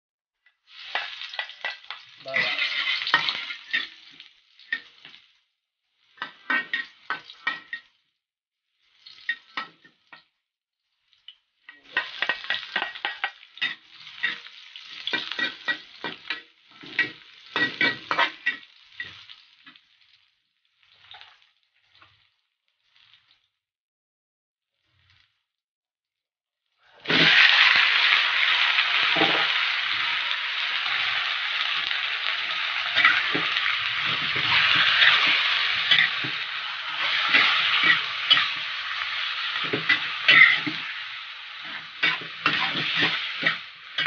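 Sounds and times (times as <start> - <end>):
onions sizzling in a wok: 0.5 - 23.6, 24.7 - 25.5, 26.8 - 44.0
metal spatula scraping a pan: 0.7 - 5.1, 6.1 - 7.9, 11.7 - 19.3, 30.8 - 44.0.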